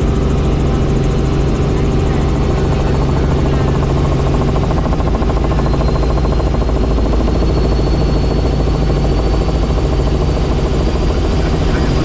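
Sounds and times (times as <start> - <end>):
helicopter engine and rotor drone: 0.0 - 12.0.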